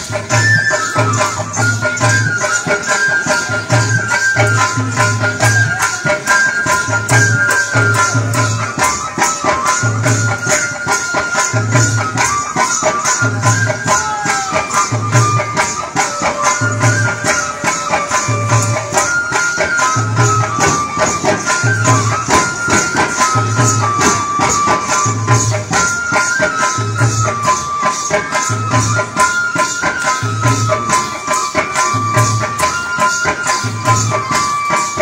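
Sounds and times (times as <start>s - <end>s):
folk melody: 0.0s - 35.0s
frame drums beating: 0.0s - 35.0s.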